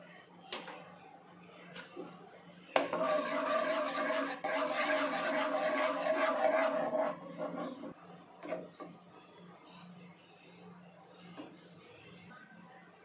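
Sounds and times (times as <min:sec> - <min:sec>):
metal ladle scraping saucepan: 0:02.8 - 0:07.9.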